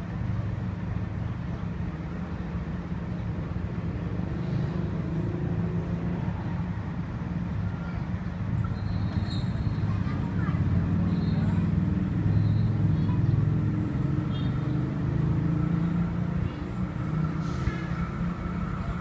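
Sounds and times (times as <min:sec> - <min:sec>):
diesel locomotive idling: 0:15.0 - 0:19.0.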